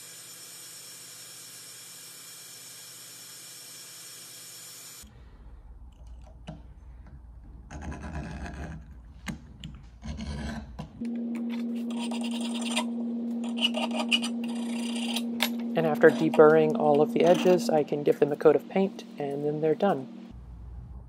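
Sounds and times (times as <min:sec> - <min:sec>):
machine hum and hiss: 0:11.0 - 0:20.8
deburring tool scraping steel: 0:11.9 - 0:17.9.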